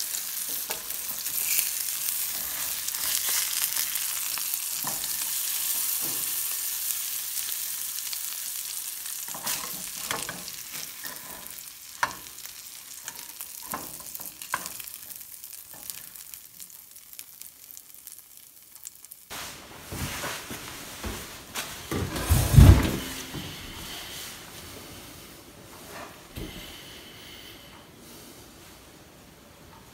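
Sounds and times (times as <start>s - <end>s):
food sizzling in frying pan: 0.0s - 19.4s
spatula scraping a pan: 9.3s - 12.2s.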